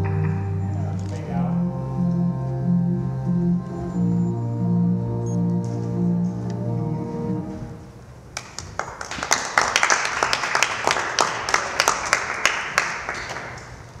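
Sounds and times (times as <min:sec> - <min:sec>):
small audience applauding: 0:08.4 - 0:14.0.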